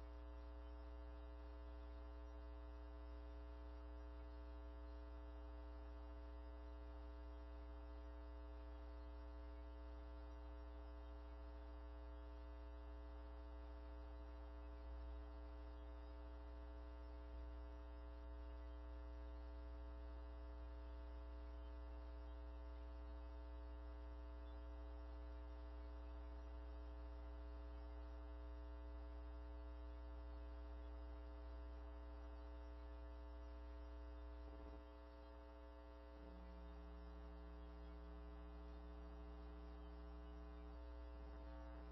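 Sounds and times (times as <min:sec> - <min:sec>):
electrical mains hum: 0:00.0 - 0:41.9.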